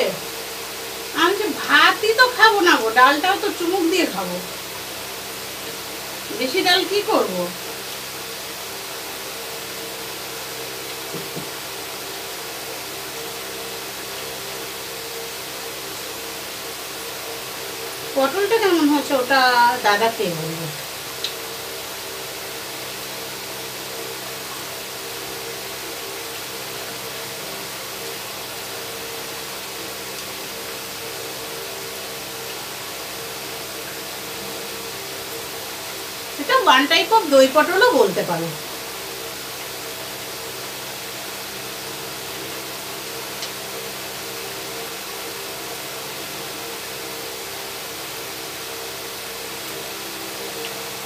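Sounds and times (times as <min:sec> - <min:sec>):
electric fan running: 0:00.0 - 0:51.0.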